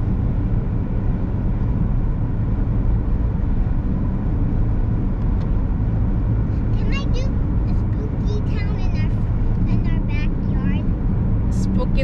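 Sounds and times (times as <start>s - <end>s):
tyre and engine rumble in car: 0.0s - 12.0s.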